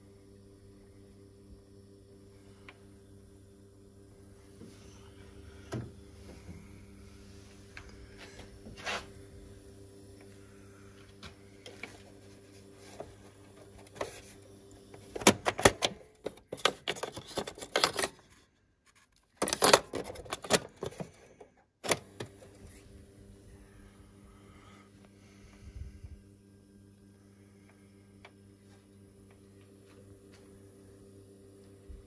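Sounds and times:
mains hum: 0.0 - 32.0
plastic clicks and clatter: 15.0 - 22.3.

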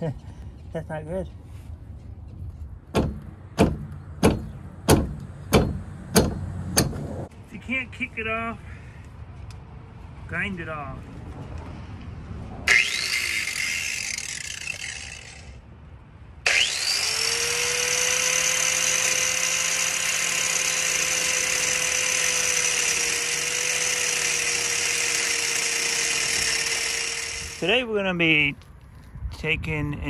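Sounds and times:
angle grinder grinding: 12.7 - 15.6, 16.5 - 27.7.

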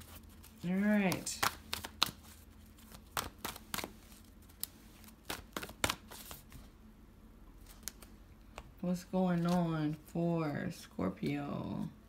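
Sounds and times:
cards being shuffled: 0.0 - 6.7, 7.6 - 8.7, 9.3 - 10.0.

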